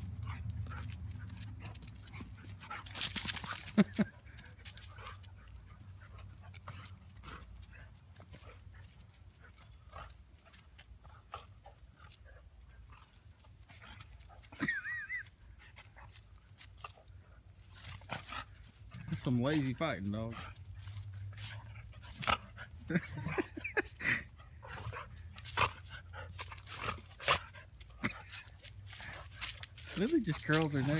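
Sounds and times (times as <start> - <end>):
dogs scuffling: 0.0 - 9.2, 17.6 - 30.9.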